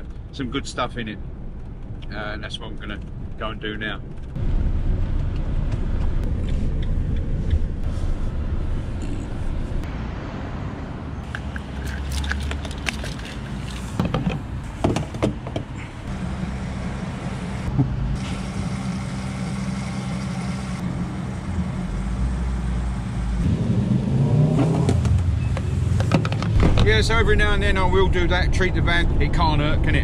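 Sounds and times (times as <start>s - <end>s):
low rumble: 2.7s - 11.3s
fuel cap clicks and rattles: 11.3s - 14.4s.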